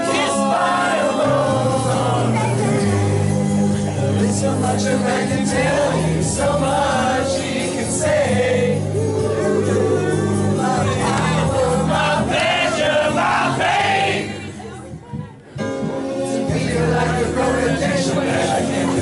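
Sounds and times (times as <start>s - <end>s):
men singing together: 0.0s - 2.6s, 4.2s - 14.4s, 16.4s - 19.0s.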